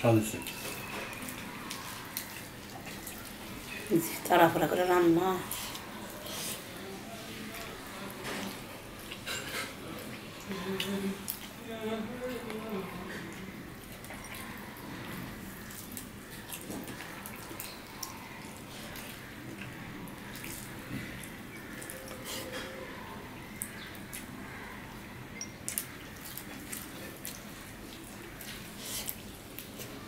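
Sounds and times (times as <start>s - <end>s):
chewing and lip smacks: 13.3s - 24.4s, 25.4s - 30.0s
fingers squishing rice with curry: 13.7s - 30.0s.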